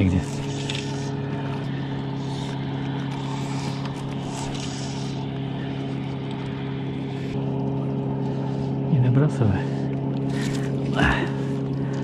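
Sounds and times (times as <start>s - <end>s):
motorboat engine humming: 0.0s - 12.0s.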